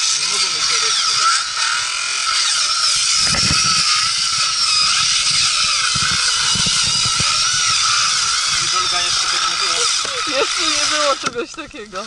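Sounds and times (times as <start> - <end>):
power tool whining into ice: 0.0 - 12.0.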